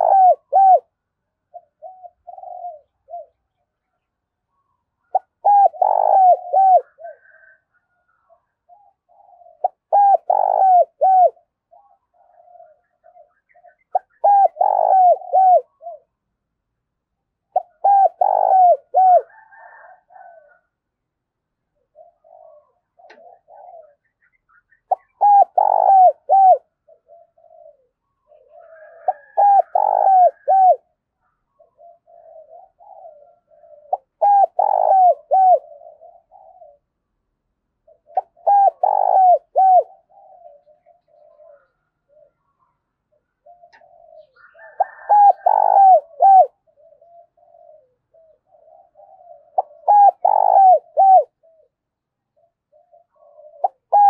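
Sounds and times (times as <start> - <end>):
dove cooing: 0.0 - 16.4, 17.2 - 20.8, 21.5 - 54.0.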